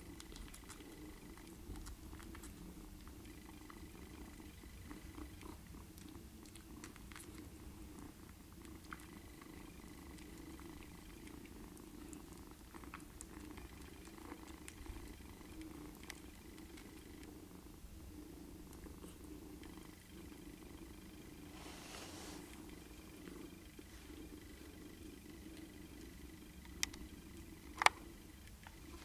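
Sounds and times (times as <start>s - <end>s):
cats purring: 0.0s - 29.0s
faint suckling clicks: 25.3s - 29.0s.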